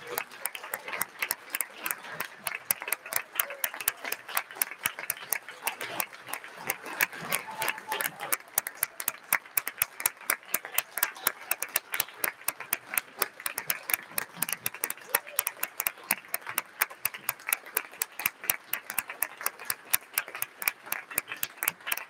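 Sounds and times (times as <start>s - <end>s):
crowd chatter: 0.0s - 21.9s
audience applauding: 0.0s - 22.0s.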